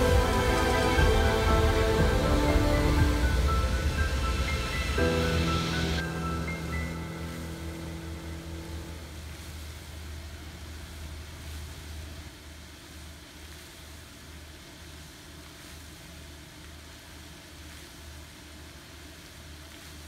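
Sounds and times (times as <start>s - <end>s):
low rumble: 0.0s - 10.7s
even hiss: 0.0s - 20.0s.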